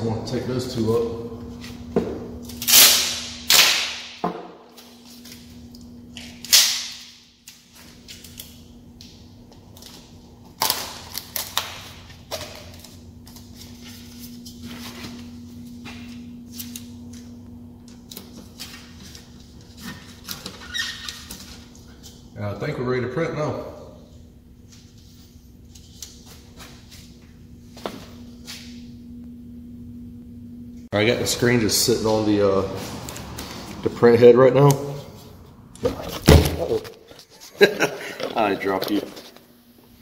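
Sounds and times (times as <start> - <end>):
low hum: 0.0 - 20.5, 21.5 - 37.0
tape ripping off a roll: 2.5 - 4.2, 6.3 - 8.6.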